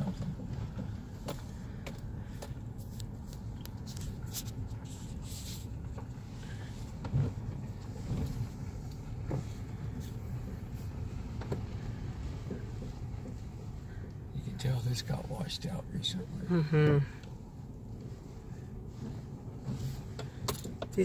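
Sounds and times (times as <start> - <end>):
knocks and rattles over bumps: 0.0 - 3.5
vehicle engine and tyres rumbling: 0.0 - 21.0.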